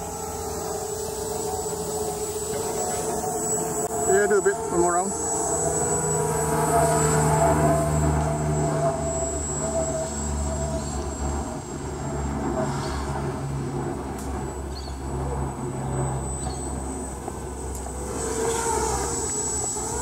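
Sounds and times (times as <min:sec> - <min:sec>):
thin high tone: 0:00.0 - 0:11.6
quadcopter motors buzzing: 0:00.0 - 0:20.0.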